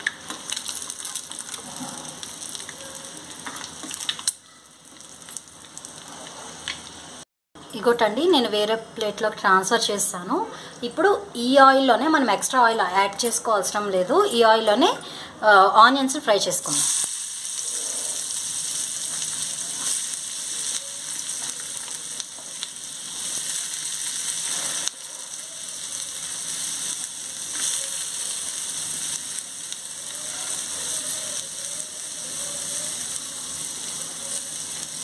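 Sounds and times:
onions sizzling in oil: 0:00.0 - 0:07.2, 0:16.4 - 0:35.0.

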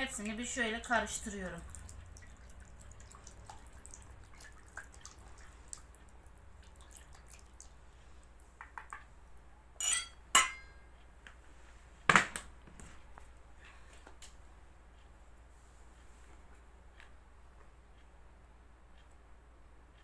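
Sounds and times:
whisk stirring batter: 0:00.1 - 0:07.9.

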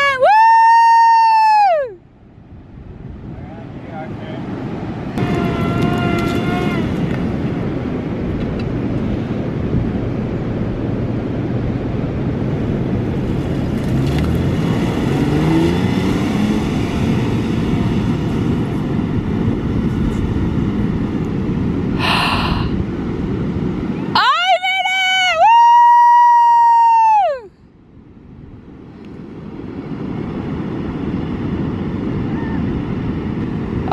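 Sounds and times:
truck engine revving: 0:05.1 - 0:07.7, 0:12.9 - 0:21.0.

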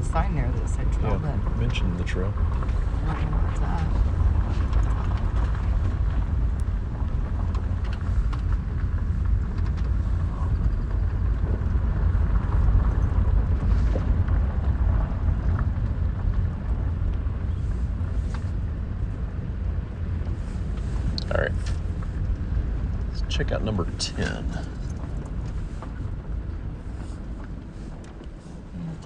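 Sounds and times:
vehicle rumbling on dirt road: 0:00.0 - 0:29.0.

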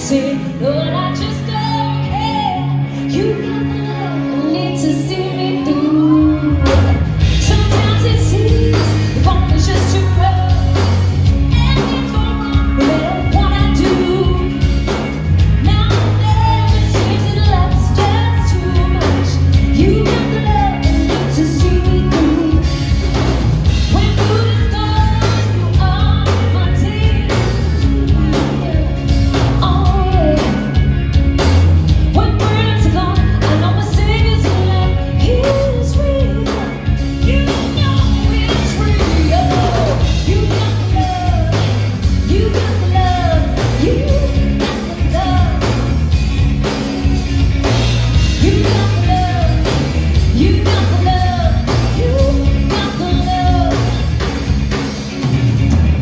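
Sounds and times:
lead singer singing: 0:00.0 - 0:54.4
bass: 0:00.0 - 0:56.0
live band playing: 0:00.0 - 0:56.0
steady drum beat: 0:06.6 - 0:56.0.

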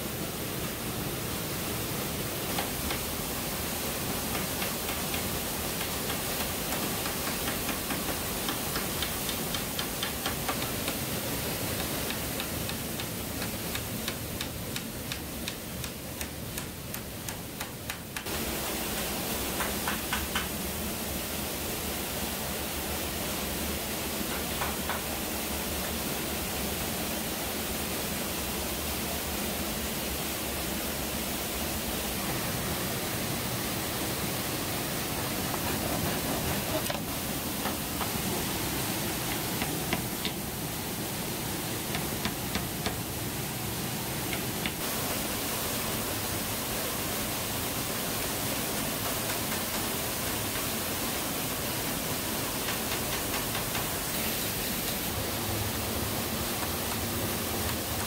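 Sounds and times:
waterfall rushing: 0:18.2 - 0:58.0.

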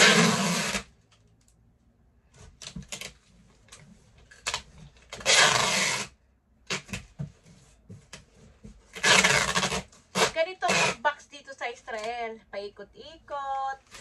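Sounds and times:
packing tape tearing off roll: 0:00.0 - 0:00.9, 0:04.4 - 0:06.1, 0:06.7 - 0:07.0, 0:08.9 - 0:11.0.

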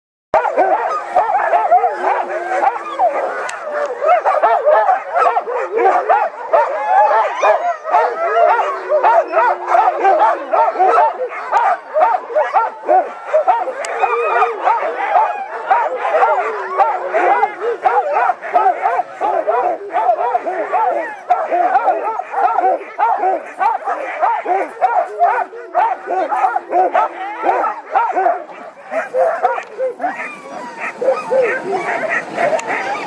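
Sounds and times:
dog howling: 0:00.4 - 0:33.0
dogs barking and yelping: 0:00.4 - 0:33.0.

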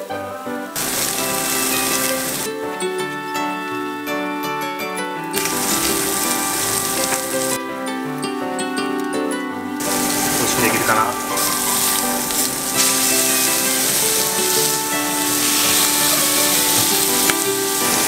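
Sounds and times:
background music: 0:00.0 - 0:18.0
steaks sizzling in hot oil: 0:00.7 - 0:02.5, 0:05.4 - 0:07.6, 0:09.8 - 0:18.0
metal tongs turning steaks: 0:09.8 - 0:18.0.

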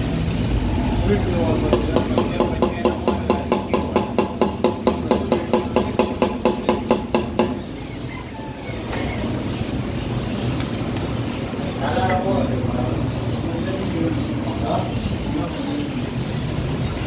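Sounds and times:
rapid ringing knocks: 0:01.7 - 0:07.7.

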